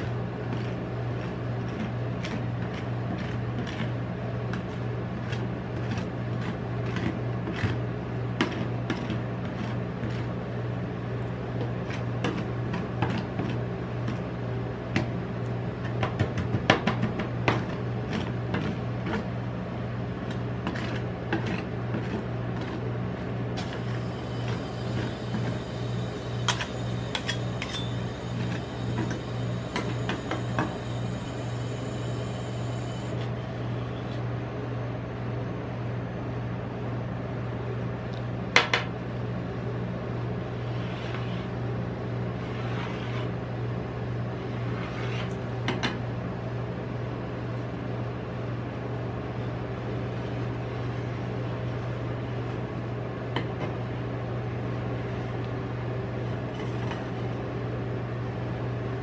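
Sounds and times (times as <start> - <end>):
cold plate machine humming: 0.0 - 59.0.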